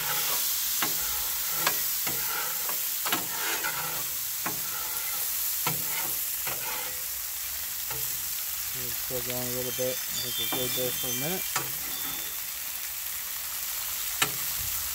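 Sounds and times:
metal spatula scraping steel: 0.0s - 7.2s, 7.8s - 8.3s, 9.7s - 12.4s
food sizzling on a griddle: 0.0s - 14.9s.

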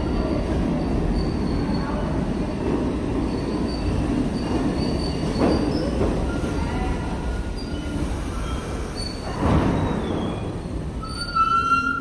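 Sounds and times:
train wheels rumbling on rail: 0.0s - 12.0s
high-pitched wheel squeals: 11.0s - 12.0s.

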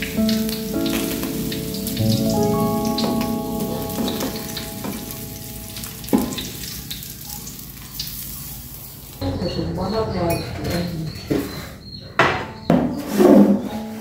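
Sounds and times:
fish sizzling in a wok: 3.4s - 9.2s.

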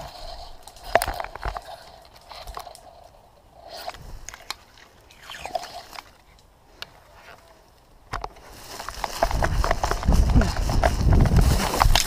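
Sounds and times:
dry grass rustling and crackling: 0.0s - 12.0s
stalks brushing camera: 3.6s - 6.4s, 8.7s - 12.0s.

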